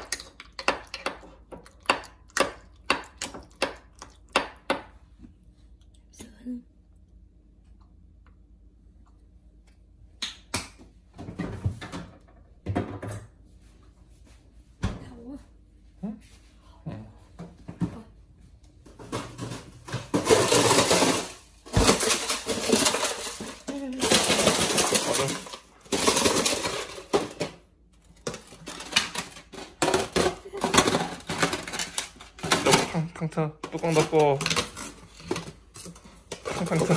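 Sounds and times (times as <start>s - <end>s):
kitchen things clattering: 18.8s - 36.9s.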